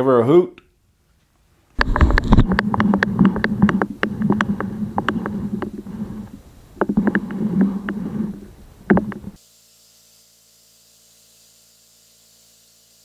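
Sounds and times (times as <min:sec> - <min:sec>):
clicks and rattles: 0:01.8 - 0:09.4
muffled compressed air drone: 0:01.8 - 0:09.4.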